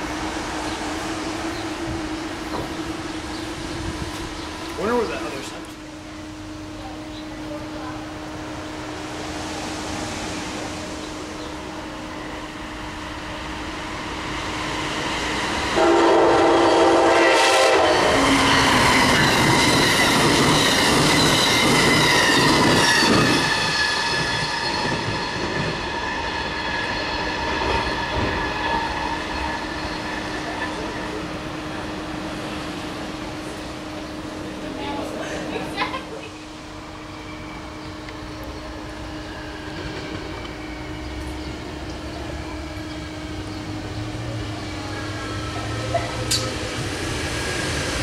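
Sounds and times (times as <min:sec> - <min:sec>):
train wheels rushing on rails: 0:00.0 - 0:48.0
train whine: 0:00.0 - 0:48.0
train horn blast: 0:15.7 - 0:19.7.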